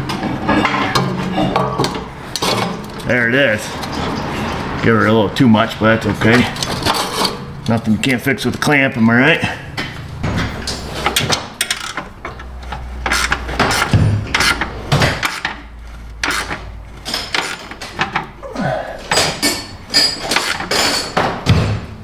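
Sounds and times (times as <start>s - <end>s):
tools clinking on exhaust pipe: 19.0s - 21.2s.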